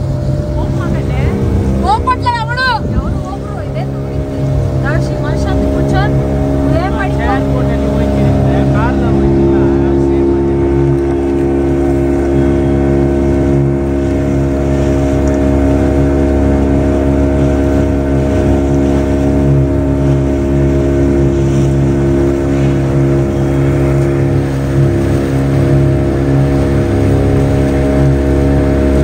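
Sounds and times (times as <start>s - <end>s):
outboard motor drone: 0.0s - 29.0s.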